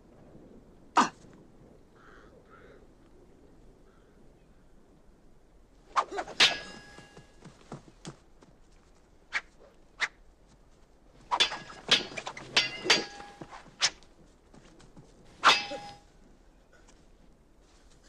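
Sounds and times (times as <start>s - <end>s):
sword blades clashing: 6.0s - 7.2s, 11.3s - 14.0s, 15.4s - 16.0s.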